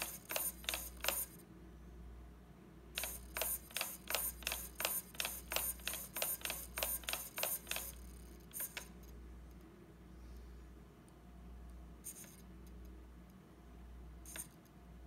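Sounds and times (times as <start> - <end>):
micro servo buzzing: 0.0 - 1.4, 3.0 - 8.9.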